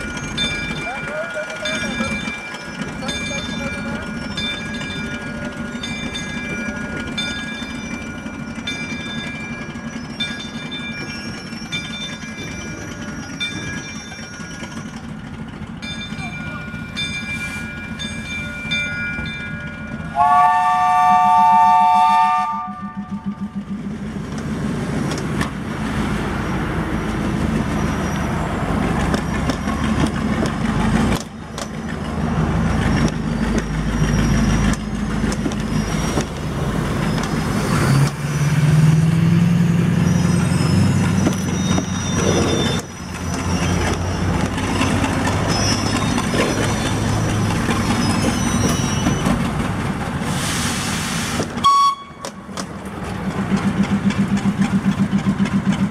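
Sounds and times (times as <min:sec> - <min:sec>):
wheels clicking on rails: 0:00.0 - 0:20.2, 0:21.1 - 0:55.9
locomotive engine rumbling: 0:00.0 - 0:55.9
locomotive horn: 0:20.1 - 0:23.4, 0:51.6 - 0:52.4.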